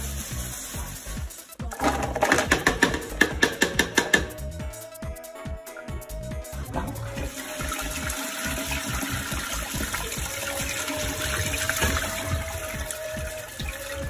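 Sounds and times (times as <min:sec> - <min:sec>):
toilet flushing: 0:01.7 - 0:04.3, 0:06.7 - 0:14.0.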